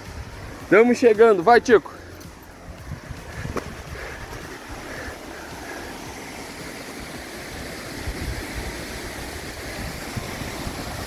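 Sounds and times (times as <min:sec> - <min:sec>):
waterfall rushing: 0:00.0 - 0:11.0
wind bumps on microphone: 0:02.6 - 0:05.1, 0:07.9 - 0:11.0.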